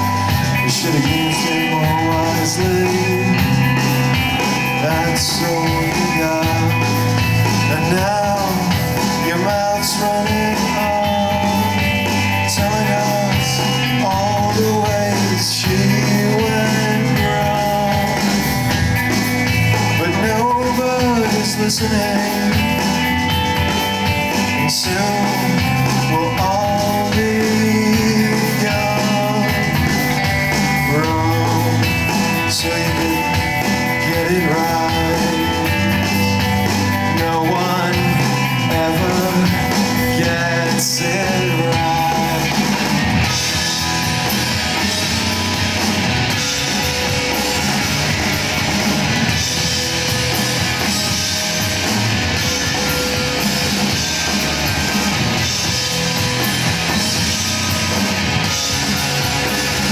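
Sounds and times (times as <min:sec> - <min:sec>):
man singing: 0:00.0 - 0:18.8, 0:19.5 - 0:45.4
bass guitar: 0:00.0 - 0:59.9
drums: 0:00.0 - 0:59.9
electric guitars: 0:00.0 - 0:59.9.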